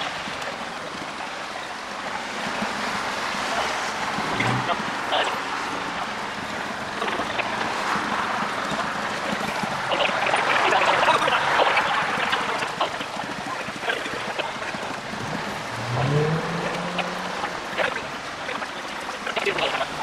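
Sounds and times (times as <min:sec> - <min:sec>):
steady rushing water-like noise: 0:00.0 - 0:20.0
short rising tone: 0:15.6 - 0:17.6.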